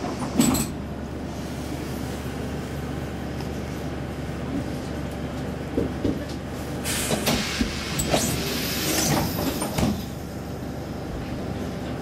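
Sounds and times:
low hum of standing train: 0:00.0 - 0:12.0
train doors hissing: 0:06.6 - 0:10.4.

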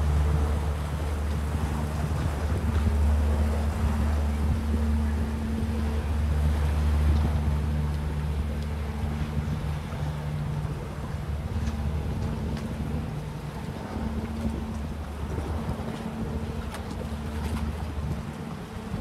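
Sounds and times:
motorboat engine humming: 0:00.0 - 0:19.0.

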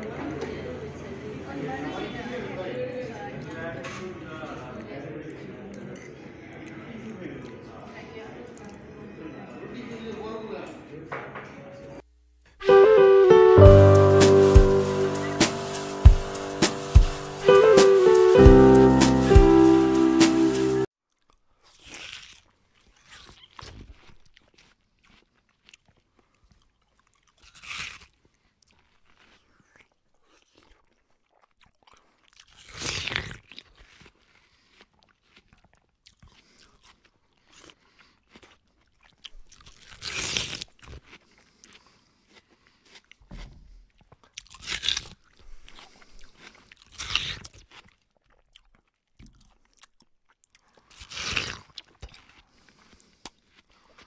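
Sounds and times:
quiet chewing: 0:07.4 - 0:08.9, 0:21.1 - 0:54.0
crunchy bites of onion rings: 0:21.2 - 0:54.0.

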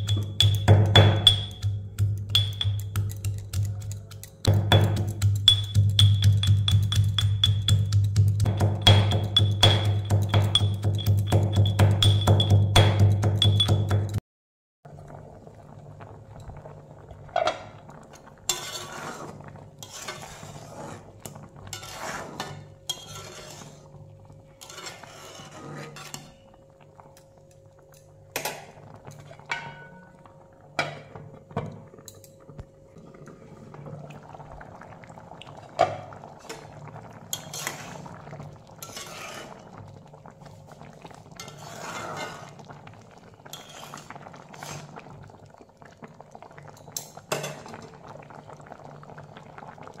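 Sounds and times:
curry bubbling: 0:00.0 - 0:14.1, 0:14.8 - 0:50.0
utensils clinking on metal pot: 0:00.0 - 0:14.2, 0:21.3 - 0:23.8, 0:24.6 - 0:26.4, 0:28.3 - 0:30.1, 0:37.3 - 0:38.0, 0:43.4 - 0:44.2, 0:46.8 - 0:47.9.

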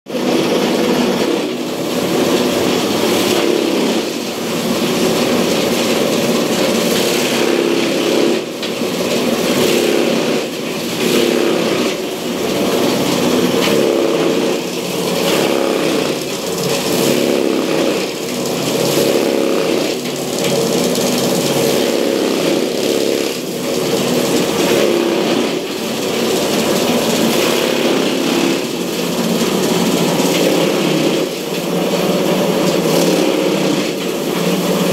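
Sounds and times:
cutting machine running: 0:00.1 - 0:34.9.

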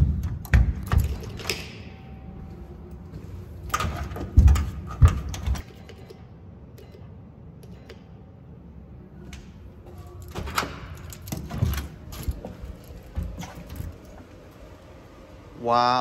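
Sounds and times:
doorknob and keys rattling: 0:00.1 - 0:01.9, 0:03.7 - 0:06.1, 0:10.1 - 0:14.2.

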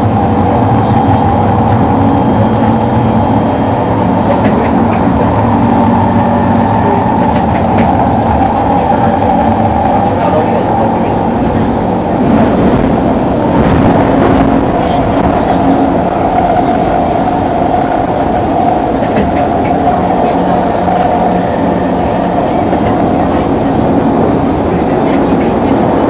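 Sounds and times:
steady whine: 0:00.0 - 0:26.0
train wheels rumbling on rail: 0:00.0 - 0:26.0.

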